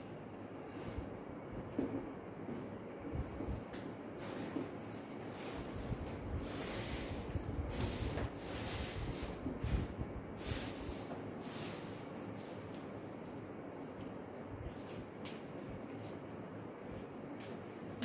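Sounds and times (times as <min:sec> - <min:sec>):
duster wiping whiteboard: 0:04.2 - 0:14.2.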